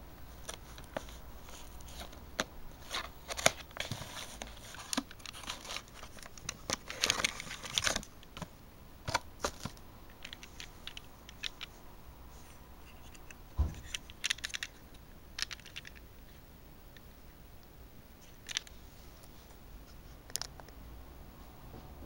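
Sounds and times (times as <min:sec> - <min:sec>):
soft thump: 0:13.6 - 0:13.8.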